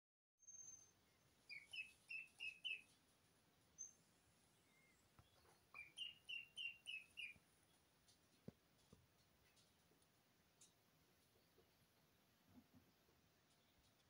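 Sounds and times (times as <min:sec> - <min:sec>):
chicks peeping: 0:01.5 - 0:03.0, 0:04.8 - 0:09.8.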